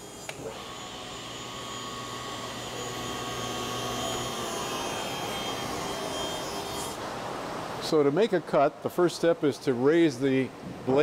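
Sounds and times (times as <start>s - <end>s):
table saw motor whine: 0.0s - 7.0s.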